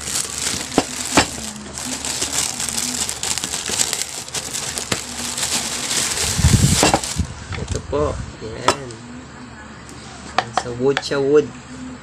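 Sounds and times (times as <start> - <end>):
plastic bag crinkling: 0.0 - 7.3.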